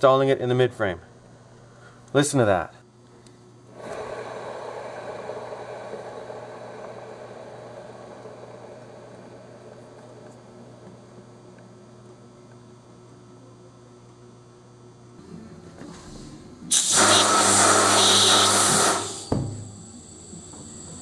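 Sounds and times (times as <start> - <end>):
compressed air hissing: 16.1 - 19.4.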